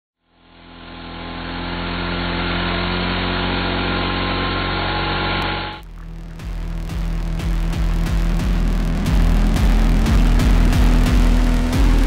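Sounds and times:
chainsaw cutting through log: 0.4s - 5.8s.

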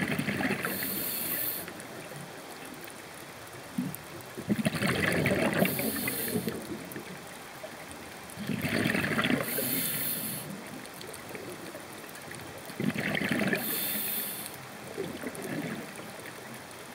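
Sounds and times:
regulator hissing inhale: 0.6s - 1.7s, 5.6s - 6.6s, 9.4s - 10.6s, 13.6s - 14.6s.

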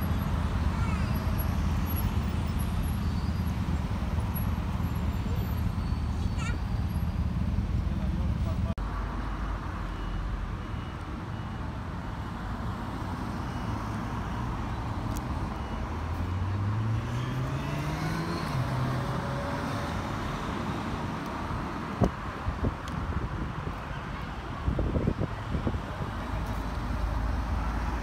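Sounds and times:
road traffic noise: 0.0s - 28.0s
faint high beeps: 9.8s - 11.7s, 13.3s - 16.3s.

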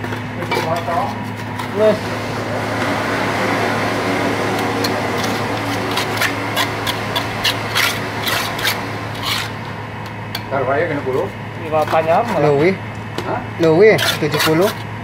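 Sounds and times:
cement scraping around pipe: 4.5s - 9.6s, 13.9s - 14.9s.

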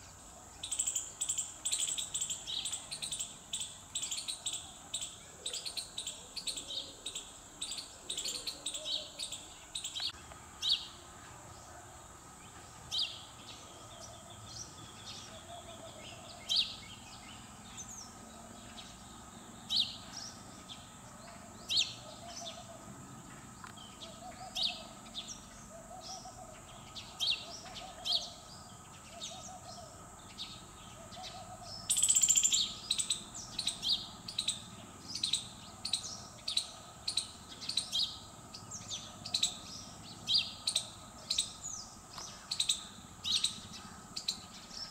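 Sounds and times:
birds chirping: 0.0s - 44.9s.

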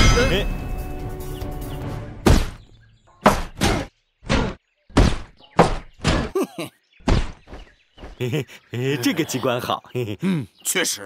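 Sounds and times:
music: 0.0s - 2.3s
cartoon impact thunk: 2.2s - 2.6s, 3.2s - 6.3s
knocks and thuds: 2.2s - 6.4s, 7.0s - 8.2s.

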